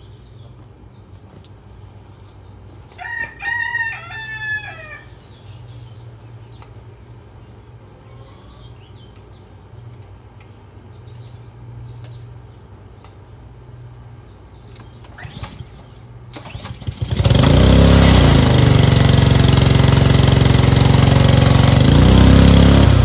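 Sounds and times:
rooster crowing: 0:02.9 - 0:05.3.

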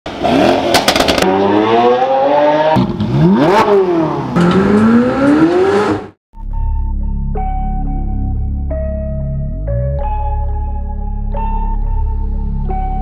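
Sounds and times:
car engine accelerating hard: 0:00.1 - 0:06.2.

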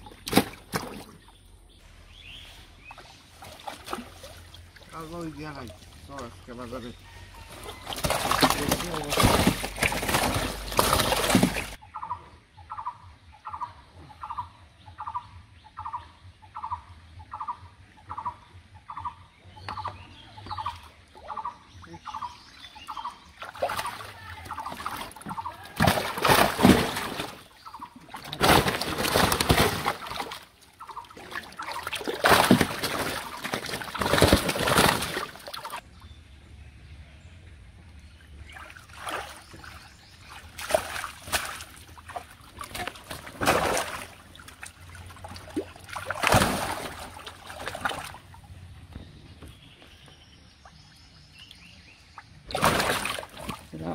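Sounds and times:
pond water splashing: 0:00.0 - 0:11.8, 0:19.7 - 0:36.1, 0:37.8 - 0:53.9
fish thrashing in a net: 0:07.3 - 0:11.8, 0:23.4 - 0:35.8, 0:38.5 - 0:48.3, 0:52.5 - 0:53.7.

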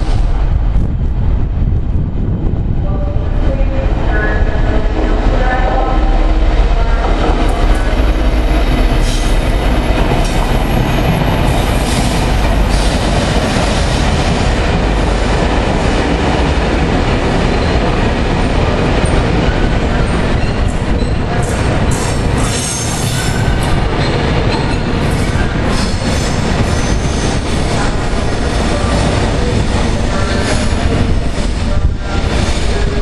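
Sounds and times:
train wheels clacking over rails: 0:07.0 - 0:33.0.

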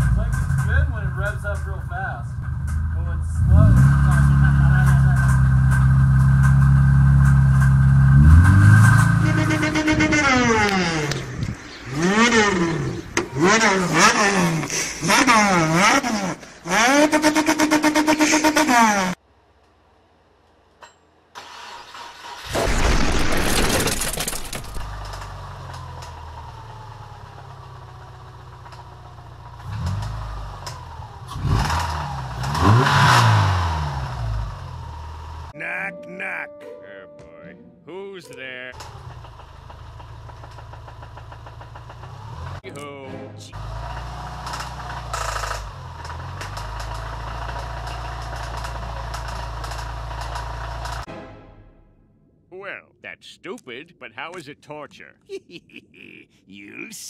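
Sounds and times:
car engine starting and idling: 0:00.0 - 0:18.9, 0:21.3 - 0:22.7, 0:38.8 - 0:42.9, 0:43.6 - 0:51.1
car engine revving: 0:02.3 - 0:19.2, 0:29.5 - 0:35.5, 0:43.6 - 0:51.1
car engine idling: 0:38.8 - 0:42.6
engine knocking: 0:38.8 - 0:42.6, 0:43.9 - 0:51.0.

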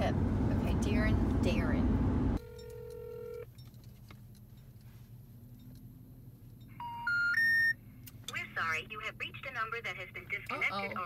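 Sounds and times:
steady electronic phone tone: 0:02.4 - 0:03.4, 0:06.8 - 0:07.8.

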